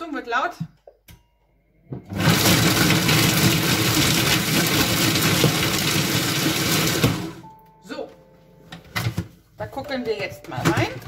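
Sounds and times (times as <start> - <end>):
food processor blade chopping: 2.1 - 7.4.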